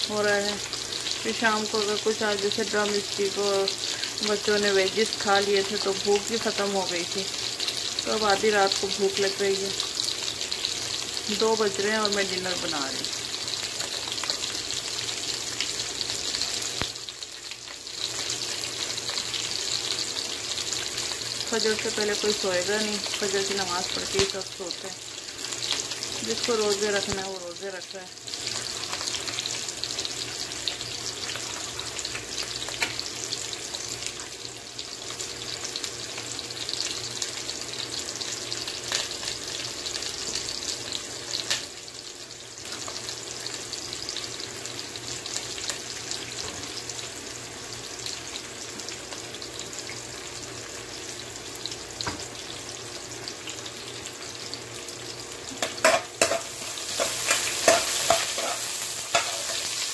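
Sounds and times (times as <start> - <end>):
onions sizzling in oil: 0.0 - 59.9
metal spoon scraping pan: 55.8 - 59.8.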